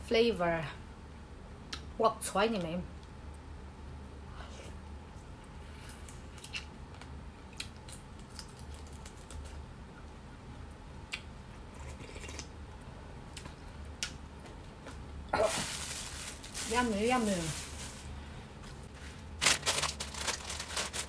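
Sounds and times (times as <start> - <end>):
person chewing fried food: 5.7 - 9.7, 11.1 - 12.5.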